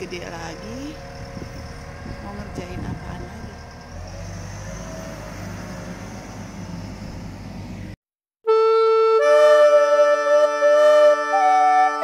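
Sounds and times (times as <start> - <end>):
diesel engine humming: 0.0 - 8.0
music of reedy chords: 8.5 - 12.0.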